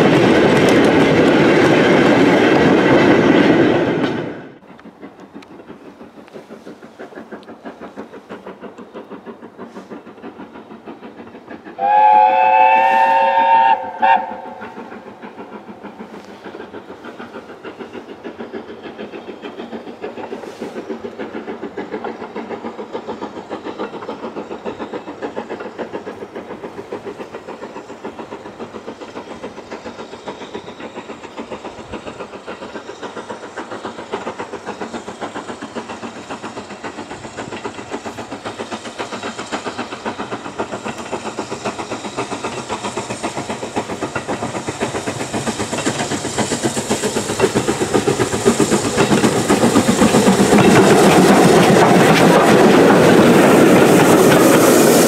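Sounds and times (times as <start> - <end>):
steam locomotive exhaust beating: 0.0 - 55.0
steam whistle: 11.8 - 14.7.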